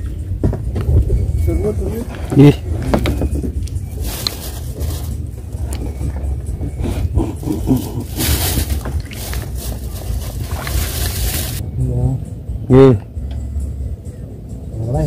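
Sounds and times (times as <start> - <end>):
wind buffeting microphone: 0.0 - 11.8.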